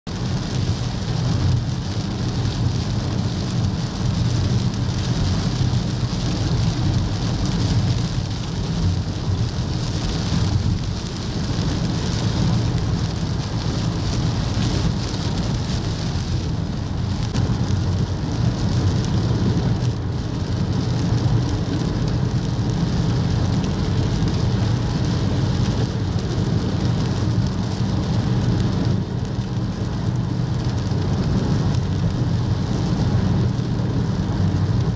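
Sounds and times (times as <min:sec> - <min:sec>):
constant low rumble: 0:00.1 - 0:34.9
torrential rain hissing: 0:00.1 - 0:34.9.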